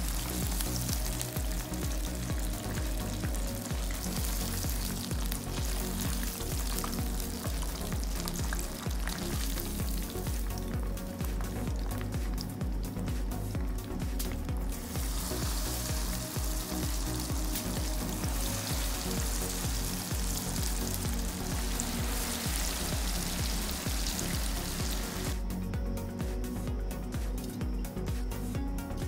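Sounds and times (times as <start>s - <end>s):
chicken sizzling in frying oil: 0.0s - 10.7s, 14.2s - 25.4s.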